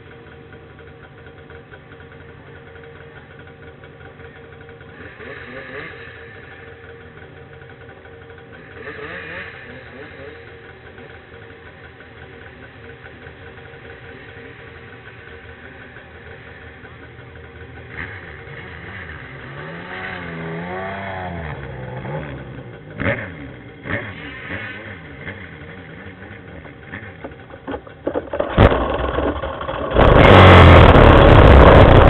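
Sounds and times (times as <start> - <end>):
snowmobile engine revving: 4.9 - 6.7, 8.6 - 10.5, 17.8 - 27.2, 28.3 - 32.0.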